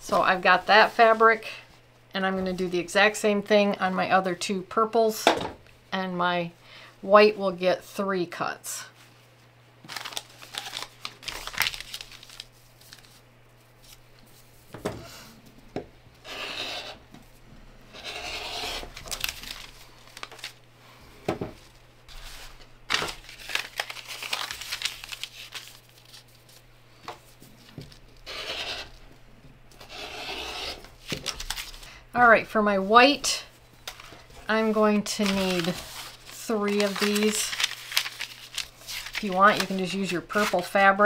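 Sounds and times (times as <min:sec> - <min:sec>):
fabric and paper rustling: 0:00.2 - 0:01.7, 0:08.9 - 0:14.7, 0:18.9 - 0:20.6, 0:21.6 - 0:26.6, 0:33.8 - 0:40.9
rotary cutter slicing fabric: 0:16.2 - 0:17.0, 0:28.3 - 0:28.9.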